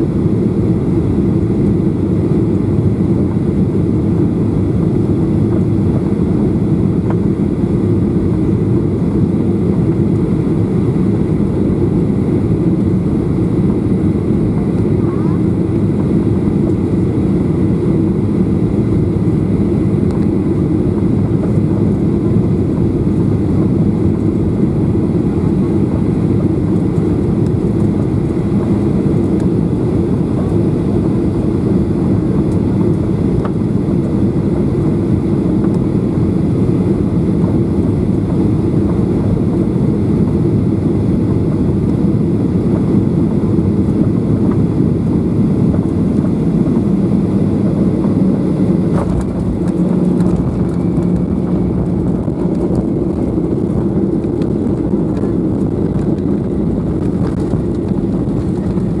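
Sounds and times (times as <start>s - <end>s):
aircraft cabin engine rumble: 0.0s - 59.0s.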